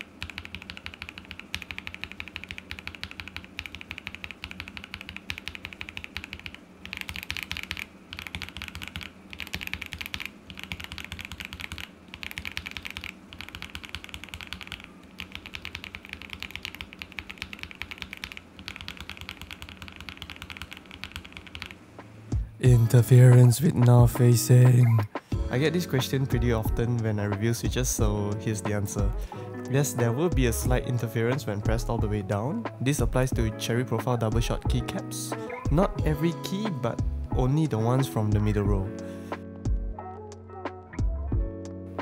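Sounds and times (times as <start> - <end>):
mechanical keyboard clacking: 0.0 - 21.8.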